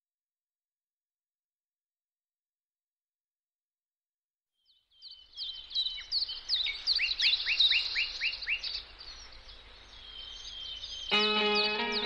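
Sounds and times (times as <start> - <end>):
songbirds chirping: 4.6 - 12.0.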